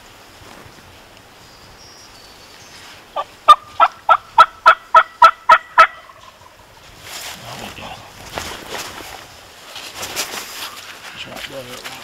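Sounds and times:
turkey call yelps: 3.2 - 6.6.

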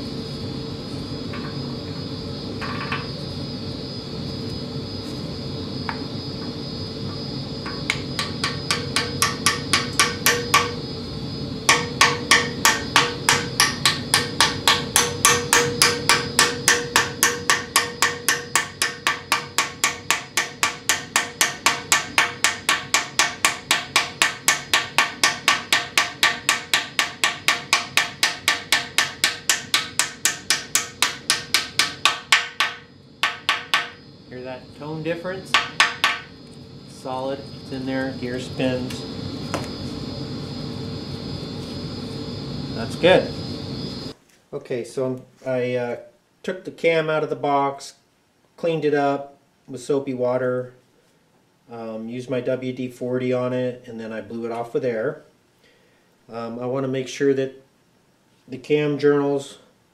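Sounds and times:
small hammer tapping metal: 7.7 - 10.8, 11.7 - 34.0, 35.6 - 36.3.

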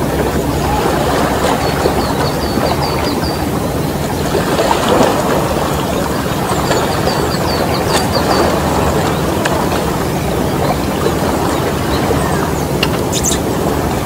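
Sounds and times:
low hum: 0.0 - 14.0
sea water rushing: 0.0 - 14.0
wind: 0.0 - 14.0
bird chirping: 1.4 - 3.5, 6.3 - 9.4, 10.5 - 13.5.

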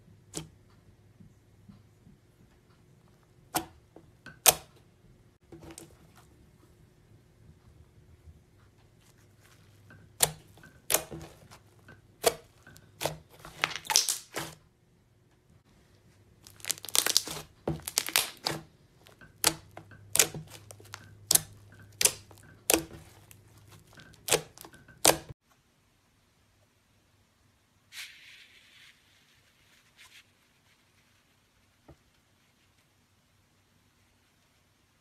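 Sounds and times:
slime crackling and popping: 12.2 - 14.6, 16.4 - 25.3.

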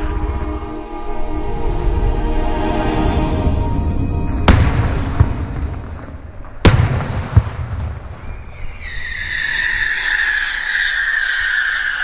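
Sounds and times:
whistling fireworks: 0.0 - 12.0
fireworks bangs: 3.7 - 10.4.

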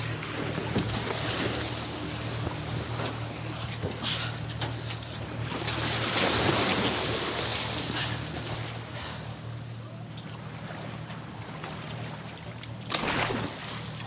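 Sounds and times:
boat motor hum: 0.0 - 14.0
heavy water splashing: 5.2 - 9.4, 10.4 - 14.0.

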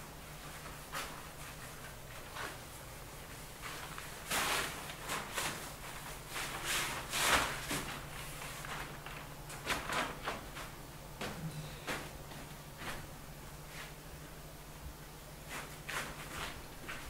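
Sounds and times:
low steady hum: 0.0 - 17.0
paint brushed onto a wall: 0.4 - 9.0, 15.4 - 17.0
feet shuffling on floor: 0.4 - 14.0, 15.4 - 17.0.

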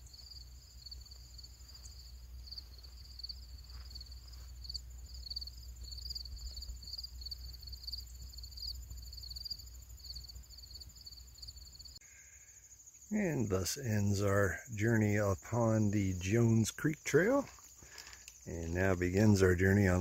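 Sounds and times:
crickets chirping: 0.0 - 20.0.

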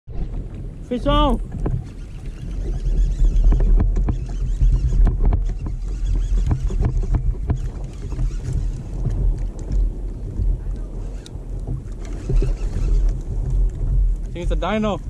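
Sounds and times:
wind rumble on microphone: 0.1 - 15.0
knocks and clicks on plastic kayak: 3.4 - 14.7.

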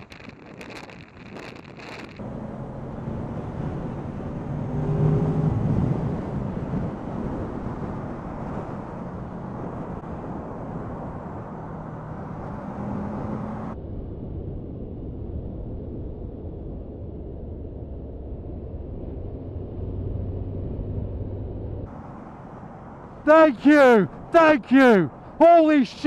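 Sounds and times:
wind on microphone: 0.0 - 2.4.

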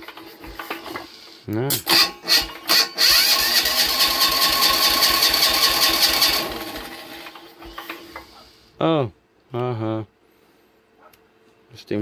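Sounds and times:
starter cranking diesel engine: 1.9 - 8.4.

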